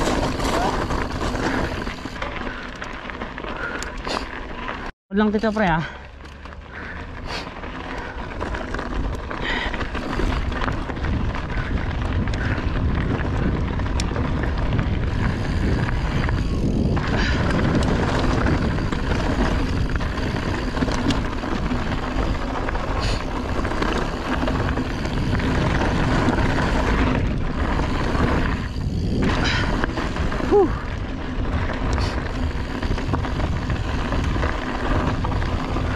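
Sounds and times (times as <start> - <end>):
bike knocks and rattles: 0.0 - 3.4
tyres rolling over rocky dirt: 0.0 - 4.9, 5.6 - 35.9
wind buffeting microphone: 6.7 - 35.9.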